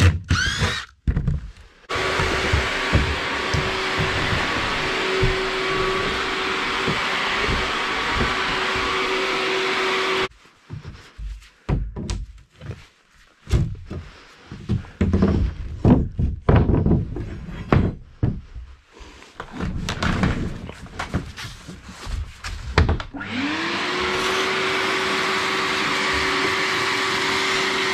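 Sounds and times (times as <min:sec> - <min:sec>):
wet dry vacuum running: 0:01.9 - 0:10.3, 0:23.2 - 0:27.9.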